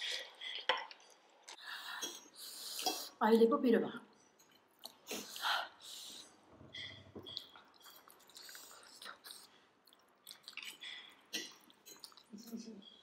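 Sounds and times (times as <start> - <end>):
chewing soft dumplings: 4.3 - 13.0.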